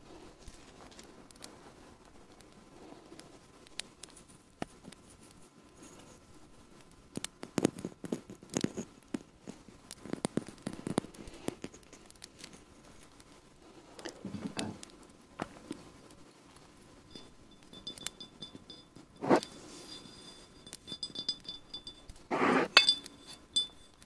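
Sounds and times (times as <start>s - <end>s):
crackles and light taps: 0.1s - 24.0s
hands crinkling something dry: 0.4s - 14.2s.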